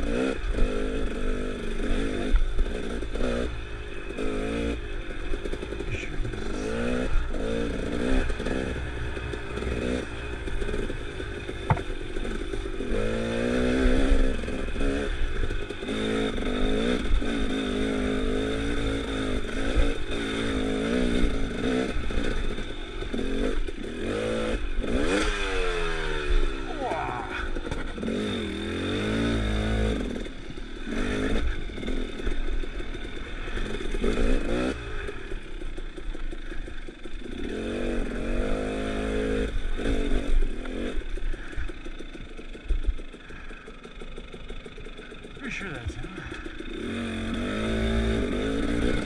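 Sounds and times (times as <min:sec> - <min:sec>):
dirt bike engine revving: 0:00.0 - 0:49.0.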